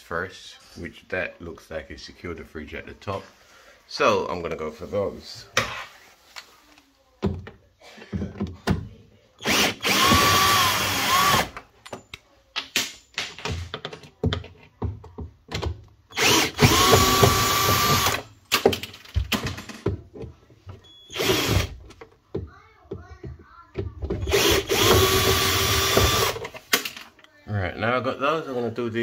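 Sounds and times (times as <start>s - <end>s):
drill motor whine: 9.4s - 11.5s, 16.2s - 18.2s, 21.2s - 21.7s, 24.3s - 26.4s.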